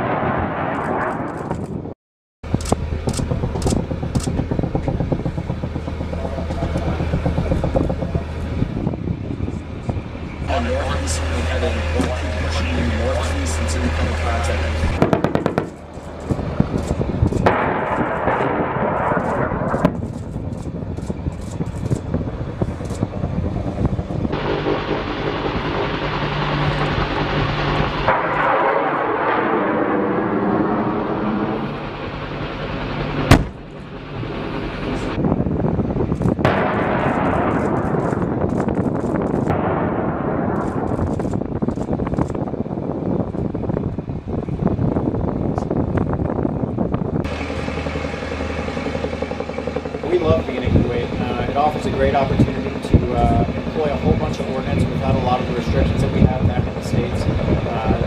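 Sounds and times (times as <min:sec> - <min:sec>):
explosion rumble: 0:00.0 - 0:58.0
helicopter rotor beat: 0:02.4 - 0:58.0
low engine drone: 0:02.4 - 0:58.0
sharp cracks: 0:02.5 - 0:08.4, 0:13.2 - 0:31.8, 0:33.2 - 0:33.7, 0:36.1 - 0:42.6.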